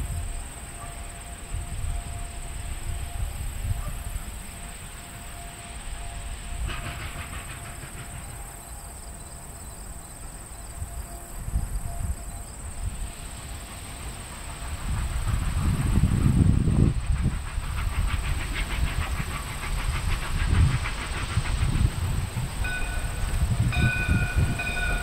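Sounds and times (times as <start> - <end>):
distant steam train: 0.0 - 25.0
wind buffeting the microphone: 1.5 - 4.3, 14.6 - 25.0.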